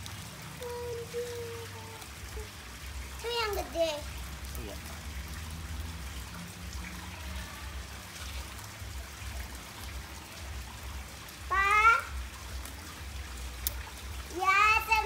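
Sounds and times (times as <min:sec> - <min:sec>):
water trickling into pond: 0:00.0 - 0:15.0
child's high-pitched call: 0:00.6 - 0:02.5, 0:11.4 - 0:12.2, 0:14.4 - 0:15.0.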